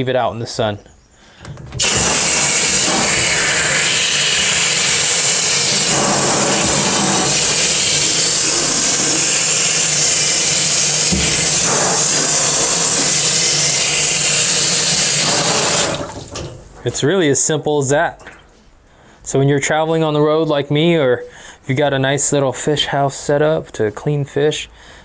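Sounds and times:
water spraying into a sink: 1.8s - 16.6s.

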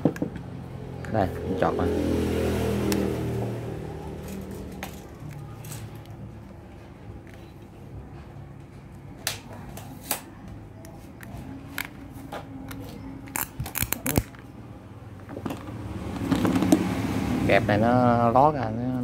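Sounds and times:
clip leads clicking and rattling: 12.7s - 14.5s.

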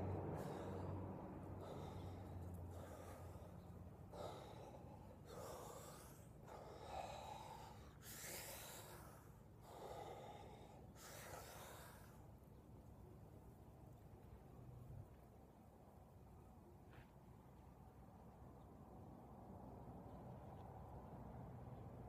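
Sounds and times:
man breathing deeply: 0.0s - 12.5s
faint low hum: 0.0s - 22.0s.

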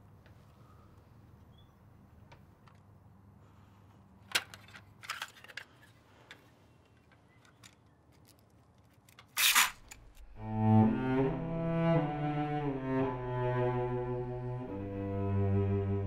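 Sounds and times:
tape snapping: 8.2s - 10.2s
cassette tape crackling and tearing: 9.2s - 10.2s
slow cello melody: 10.2s - 16.0s.

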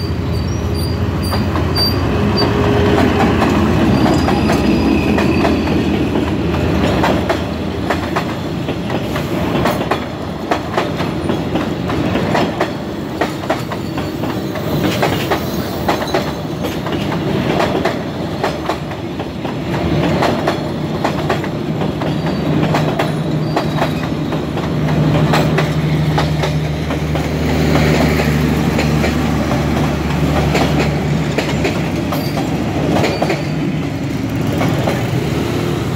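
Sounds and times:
train wheels clicking over rail joints: 0.3s - 35.6s.

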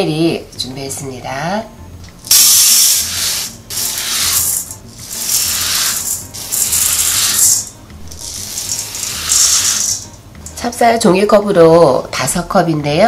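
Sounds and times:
rice pouring into steel bowl: 2.3s - 10.1s.

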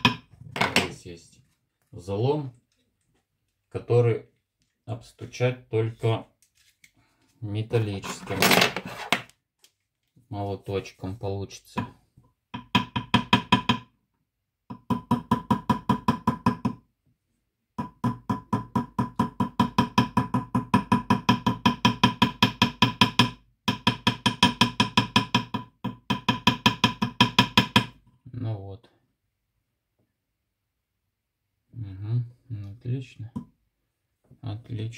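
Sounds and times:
hammer tapping on metal ring: 12.5s - 13.9s, 17.8s - 28.0s.

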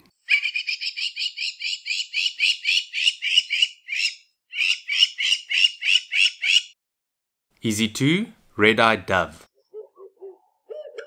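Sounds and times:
lapwing calling: 0.1s - 6.8s, 9.6s - 11.0s.

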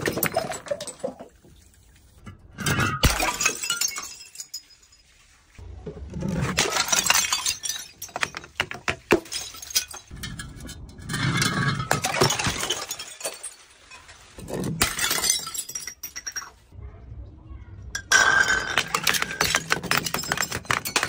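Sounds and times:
glass bottles smashing on concrete: 0.0s - 1.4s, 2.6s - 5.3s, 6.5s - 16.7s, 18.0s - 21.0s
glass shards clinking: 2.6s - 5.1s, 6.5s - 16.6s, 18.0s - 21.0s.

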